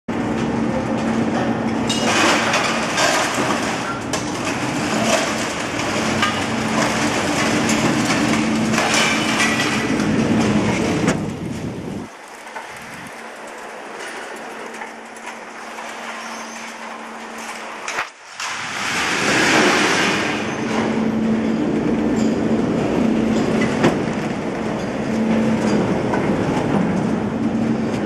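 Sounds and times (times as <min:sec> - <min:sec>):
crane machinery humming: 0:00.1 - 0:18.3, 0:19.5 - 0:28.0
scrap metal clanking: 0:01.9 - 0:11.4.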